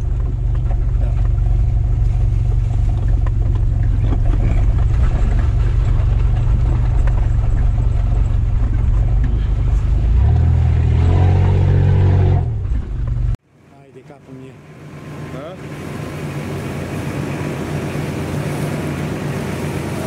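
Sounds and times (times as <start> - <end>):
bodywork knocks and rattles: 0.0 - 11.2
off-road vehicle engine under load: 0.0 - 13.4, 14.0 - 20.0.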